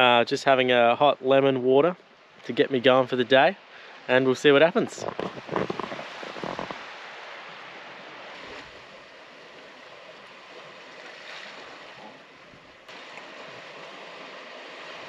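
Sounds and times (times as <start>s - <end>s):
surf washing on rocky shore: 3.8s - 15.0s.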